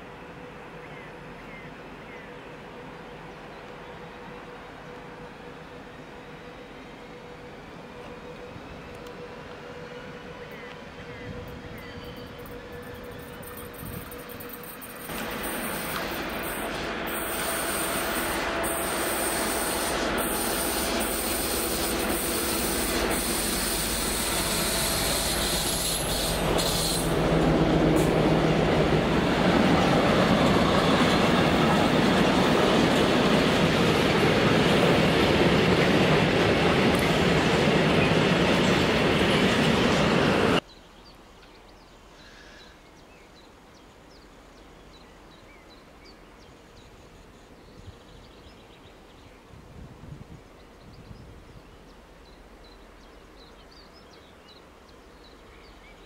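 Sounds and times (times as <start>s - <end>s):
freight train wheels rumbling on rails: 0.0s - 40.6s.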